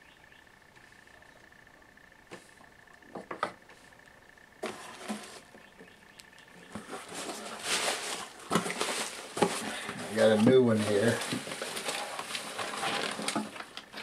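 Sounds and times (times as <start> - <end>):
bubble wrap crinkling: 6.7 - 14.0.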